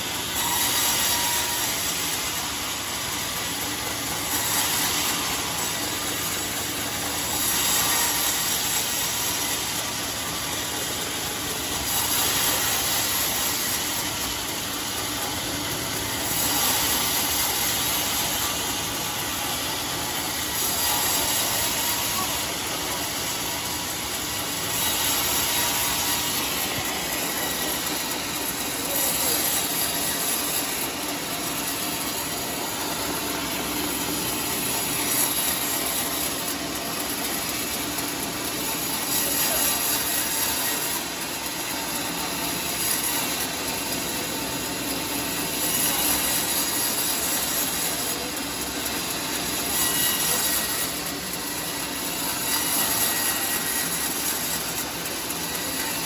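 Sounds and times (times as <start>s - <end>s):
circular saw cutting log: 0.0s - 56.0s.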